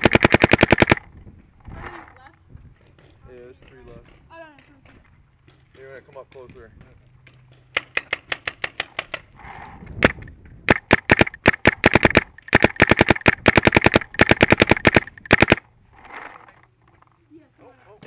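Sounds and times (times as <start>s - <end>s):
paintball marker firing: 0.0s - 1.1s, 7.5s - 9.2s, 10.0s - 15.6s.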